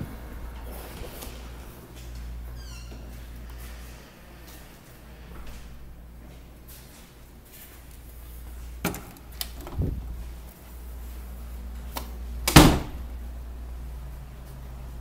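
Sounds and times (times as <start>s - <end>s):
steady low hum: 0.0s - 15.0s
door thudding shut: 12.5s - 13.0s.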